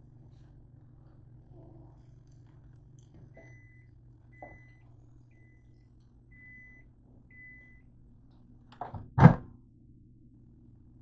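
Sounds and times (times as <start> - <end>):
microwave oven beeping: 1.4 - 9.4.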